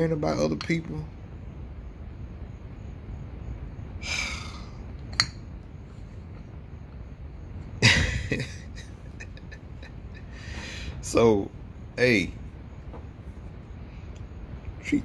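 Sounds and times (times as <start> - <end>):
room hiss: 0.0 - 15.0
breathy exhale: 10.3 - 11.0.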